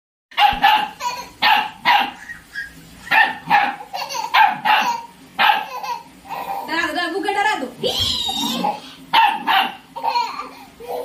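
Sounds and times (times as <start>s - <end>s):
puppy barking: 0.3s - 5.8s, 9.1s - 9.9s.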